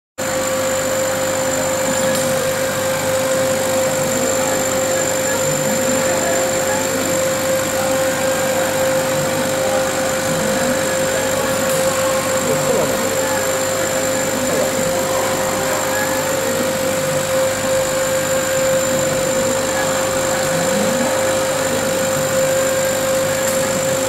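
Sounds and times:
laser cutter whirring: 0.2 - 24.0
machine hum: 0.2 - 24.0.

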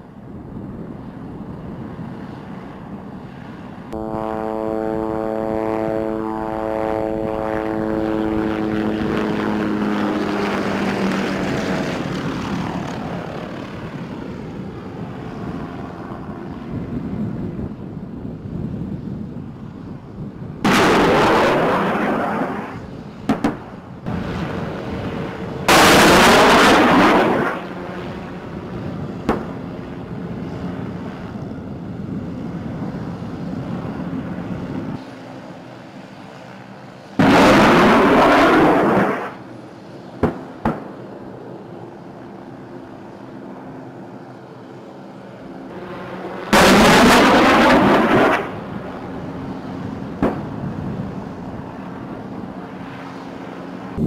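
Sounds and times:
helicopter engine and rotor hum: 0.0 - 54.0
rockets launching with rushing roar: 20.2 - 31.4, 37.1 - 41.1, 45.7 - 54.0
sharp bangs: 20.6 - 22.1, 25.7 - 27.6, 37.2 - 39.4, 46.5 - 48.6.

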